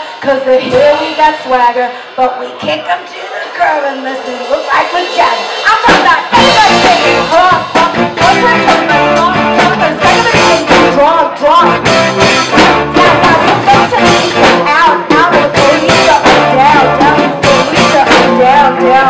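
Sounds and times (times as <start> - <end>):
drum kit beat: 0.0 - 19.0
woman singing into microphone: 0.0 - 19.0
electric guitar: 4.0 - 19.0.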